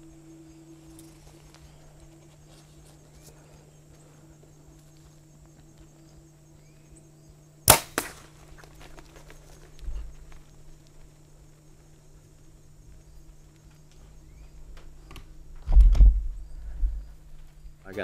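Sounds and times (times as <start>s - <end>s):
faint steady hum: 0.0s - 18.0s
arrow striking: 7.7s - 8.4s.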